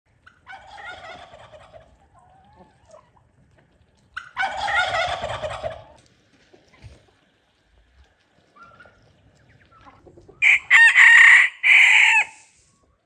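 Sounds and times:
turkey gobbling: 0:00.1 - 0:03.3, 0:04.1 - 0:07.2, 0:08.5 - 0:12.5
soft bird calls: 0:08.4 - 0:10.4.

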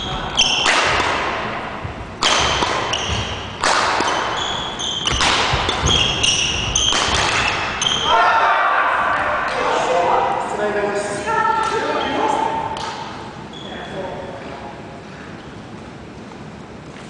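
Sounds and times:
shoes squeaking on floor: 0:00.0 - 0:00.8, 0:02.2 - 0:08.2, 0:13.5 - 0:14.6
racket hitting shuttlecock: 0:00.4 - 0:08.1.

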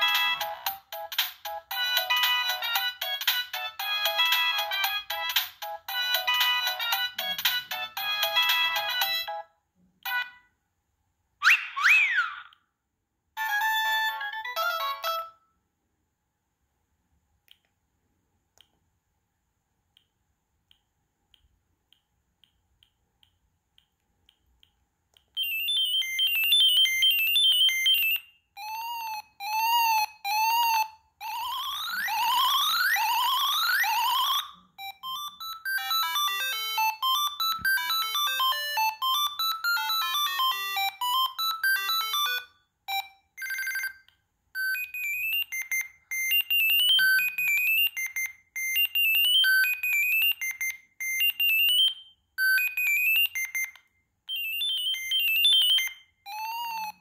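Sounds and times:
mobile phone ringtone melodies: 0:00.0 - 0:10.4, 0:13.4 - 0:15.5, 0:25.4 - 0:57.0.

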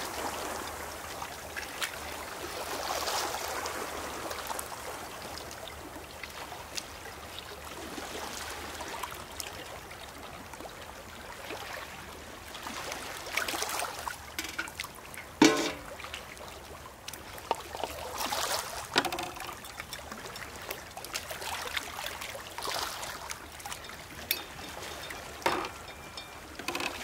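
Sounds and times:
small waves lapping on pebbles: 0:00.0 - 0:27.0
water trickling into bottles: 0:13.5 - 0:16.1, 0:16.9 - 0:27.0
metal bucket clanking on stones: 0:14.4 - 0:16.0, 0:18.9 - 0:20.1, 0:23.8 - 0:27.0.

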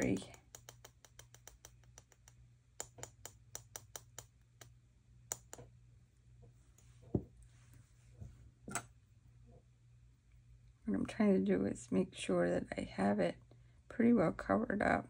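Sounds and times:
scattered clicks: 0:00.0 - 0:04.7, 0:05.3 - 0:05.6
rapid light tapping: 0:00.0 - 0:05.7.

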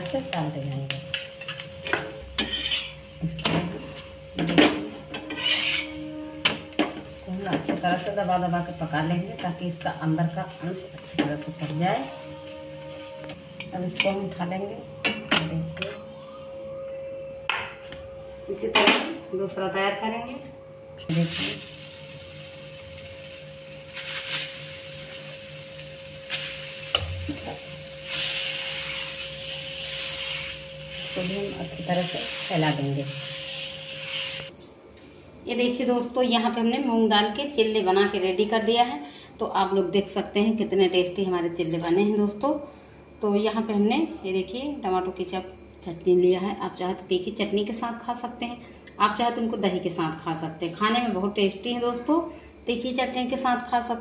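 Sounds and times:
spatula scraping iron griddle: 0:02.3 - 0:03.1, 0:03.7 - 0:08.2, 0:21.1 - 0:34.5.

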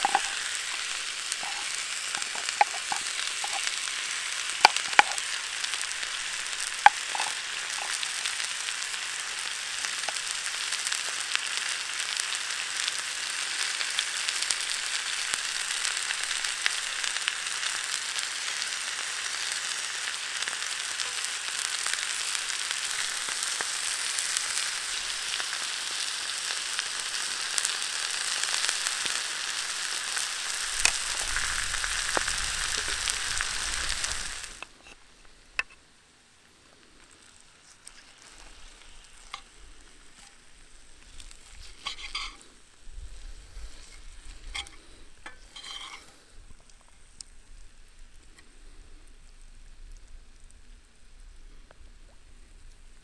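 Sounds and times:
fat popping and crackling: 0:00.0 - 0:11.6, 0:21.8 - 0:25.6, 0:26.4 - 0:35.8, 0:36.8 - 0:42.8
steak sizzling in a pan: 0:00.0 - 0:35.8, 0:37.1 - 0:48.2.

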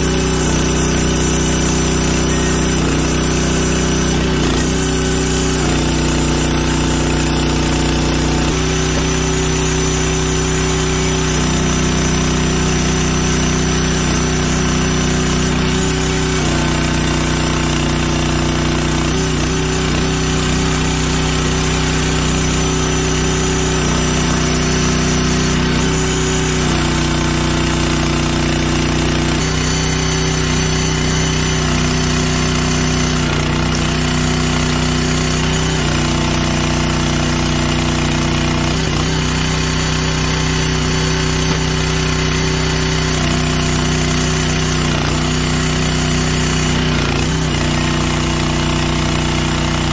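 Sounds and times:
petrol engine running: 0:00.0 - 0:17.6.

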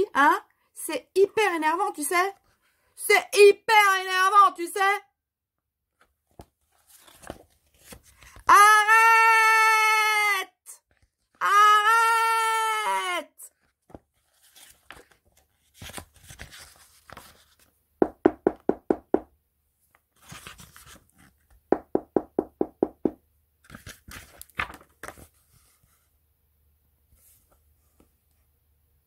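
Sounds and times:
book pages rustling: 0:05.9 - 0:08.5, 0:10.8 - 0:11.4, 0:13.5 - 0:17.8, 0:19.8 - 0:21.6, 0:23.6 - 0:26.2, 0:27.1 - 0:28.3.

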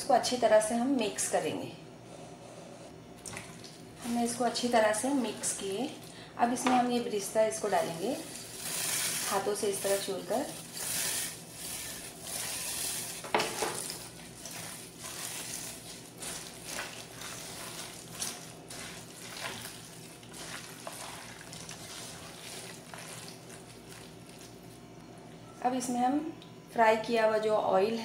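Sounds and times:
wet mixing strokes in a pot: 0:07.6 - 0:24.8.

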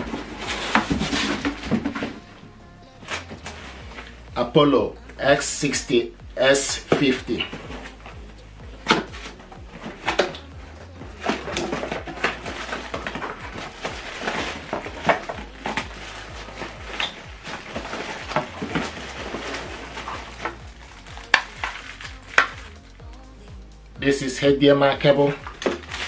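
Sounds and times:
cardboard box flaps opening: 0:00.0 - 0:02.2
plastic-wrapped cables rustling: 0:00.0 - 0:02.4, 0:06.4 - 0:23.3, 0:24.2 - 0:26.0.

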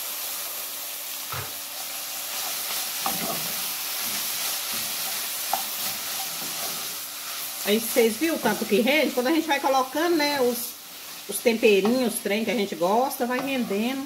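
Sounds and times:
chicken sizzling in metal pot: 0:00.0 - 0:14.0
spoon scraping pot: 0:11.8 - 0:14.0.

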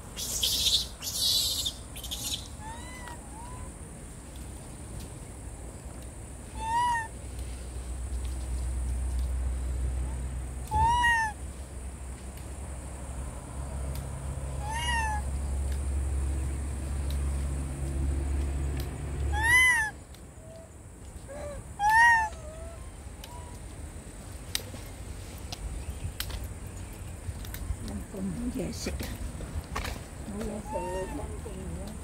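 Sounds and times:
macaque coo calls: 0:00.2 - 0:03.8, 0:06.6 - 0:07.1, 0:10.7 - 0:11.4, 0:19.3 - 0:20.6, 0:21.3 - 0:23.6, 0:30.4 - 0:31.5.

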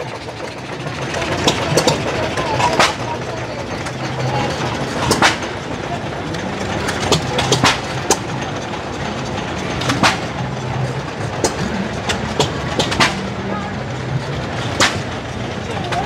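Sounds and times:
steady background din: 0:00.0 - 0:16.0
engine exhaust pops: 0:05.0 - 0:05.6, 0:06.3 - 0:08.4, 0:09.7 - 0:10.6, 0:11.3 - 0:13.4, 0:14.6 - 0:15.2.

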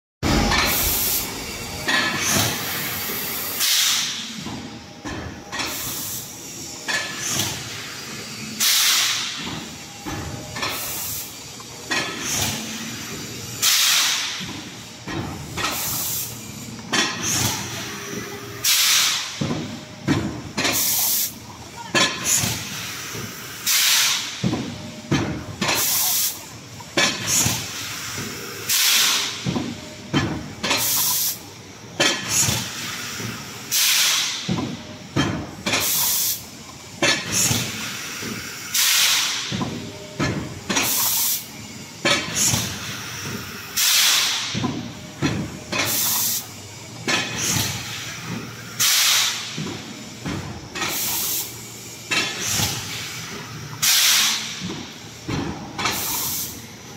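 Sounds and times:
compressed air hiss: 0:00.6 - 0:01.4, 0:02.0 - 0:04.2, 0:08.6 - 0:09.5, 0:13.6 - 0:14.9, 0:18.6 - 0:19.4, 0:23.6 - 0:24.4, 0:30.8 - 0:31.4, 0:32.2 - 0:34.4, 0:35.7 - 0:36.4, 0:37.3 - 0:39.5, 0:43.8 - 0:44.6, 0:48.8 - 0:49.6, 0:50.8 - 0:53.2, 0:53.8 - 0:54.7, 0:55.9 - 0:56.6.

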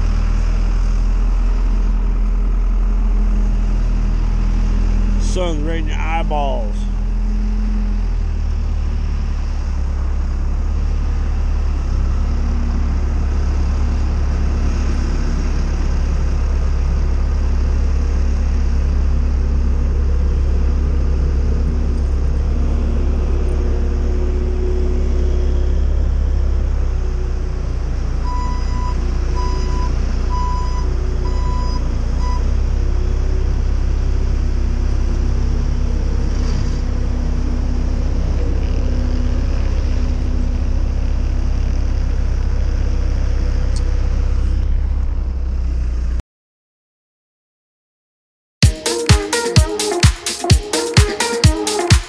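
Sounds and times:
low engine rumble: 0:00.0 - 0:46.2.

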